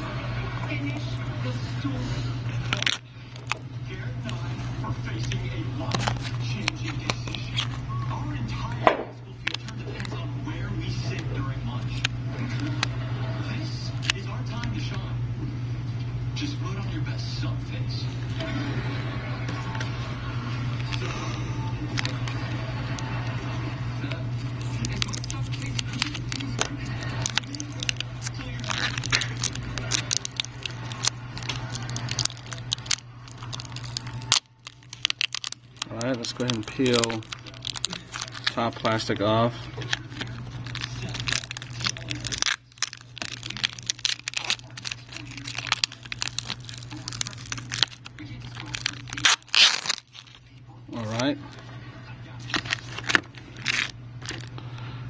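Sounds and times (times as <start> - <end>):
steady low hum: 0.0 - 55.0
plastic film crinkling and clicking: 2.5 - 10.3, 13.8 - 14.8, 19.5 - 23.4, 24.0 - 51.6, 52.4 - 54.6.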